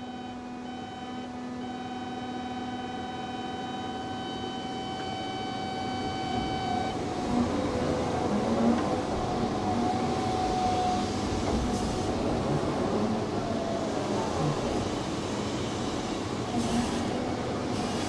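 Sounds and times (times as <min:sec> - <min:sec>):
excavator engine drone: 0:00.0 - 0:18.0.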